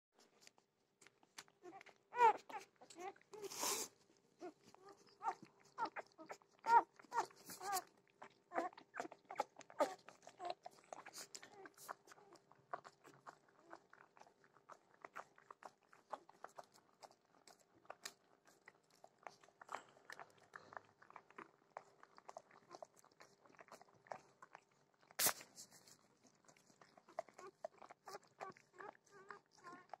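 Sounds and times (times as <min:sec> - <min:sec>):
puppies squeaking and whimpering: 0:01.6 - 0:13.8, 0:26.9 - 0:30.0.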